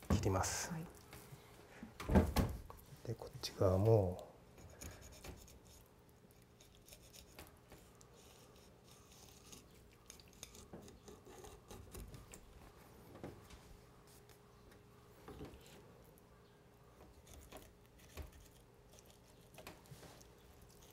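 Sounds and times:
knife scraping along fish bones: 4.6 - 12.3.

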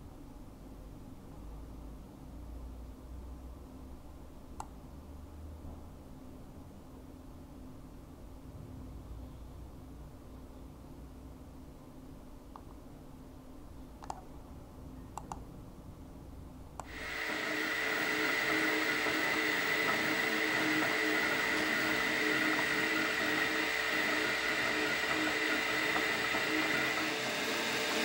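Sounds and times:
faint hum: 0.0 - 28.0
soft clicks: 4.6 - 4.8, 12.5 - 12.8, 14.0 - 14.3, 15.1 - 15.5.

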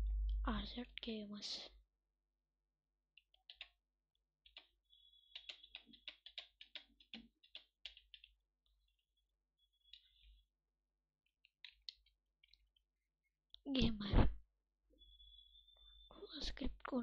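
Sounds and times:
computer keyboard typing: 3.4 - 3.7, 5.3 - 8.3.

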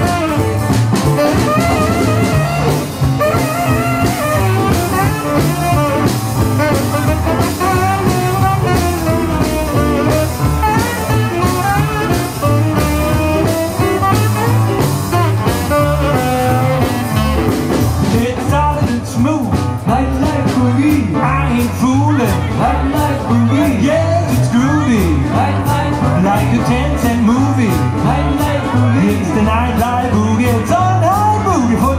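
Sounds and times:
saxophone lead: 0.0 - 18.1
electric guitar: 0.0 - 24.6
drum beat: 0.0 - 30.6
upright bass: 0.0 - 31.9.

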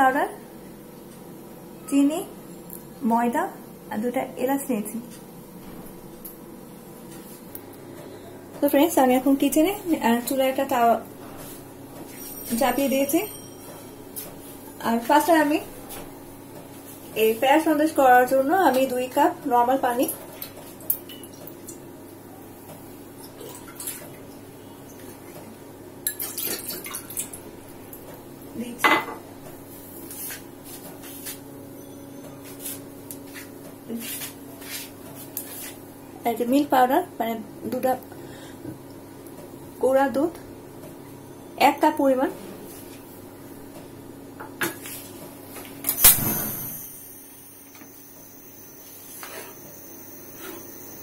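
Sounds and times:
steady low hum: 35.3 - 51.0.

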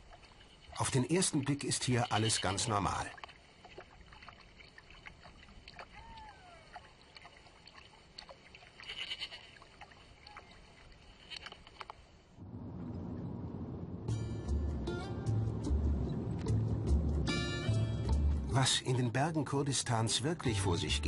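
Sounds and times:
faint outdoor hiss: 0.0 - 16.8
car road rumble: 12.4 - 18.5
music: 14.1 - 21.0.

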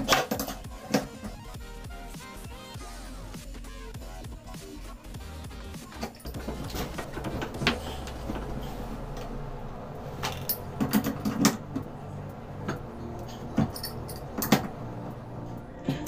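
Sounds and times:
knocking and scraping: 5.9 - 9.4
metal tool clicks and clanks: 13.5 - 14.7.

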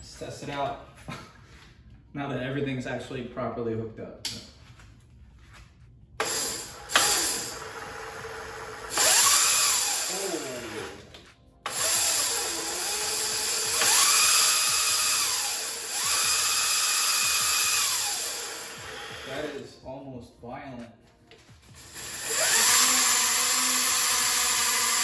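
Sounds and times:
electric motor whine: 6.2 - 11.1, 11.7 - 19.6, 21.7 - 25.0.

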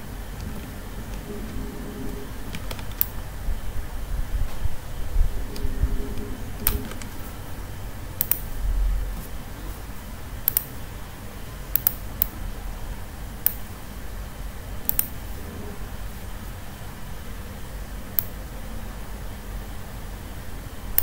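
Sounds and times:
low rumble: 0.0 - 10.2, 14.4 - 18.1
low background hiss and hum: 0.0 - 21.0
computer mouse clicking: 0.4 - 3.2, 5.5 - 7.3, 8.2 - 8.5, 10.4 - 10.8, 11.7 - 12.4, 14.9 - 15.2.

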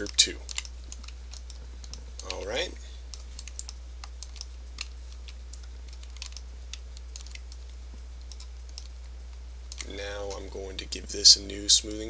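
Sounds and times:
steady low hum: 0.0 - 12.0
keyboard and mouse clicking: 3.2 - 8.9.

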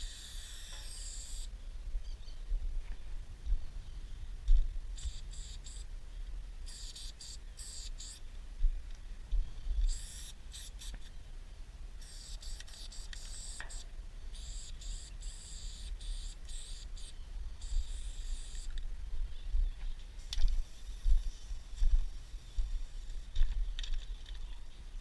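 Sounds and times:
spray-paint can hissing: 0.0 - 1.5, 5.0 - 5.8, 6.7 - 8.2, 9.9 - 11.1, 12.0 - 13.8, 14.4 - 18.7.

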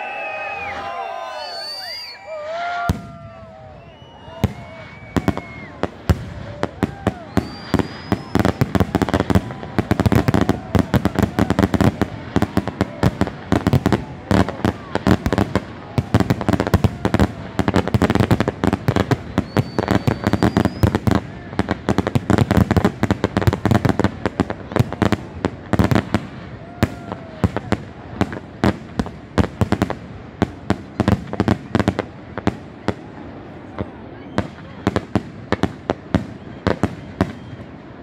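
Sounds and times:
rapid firecracker pops: 4.4 - 33.0.

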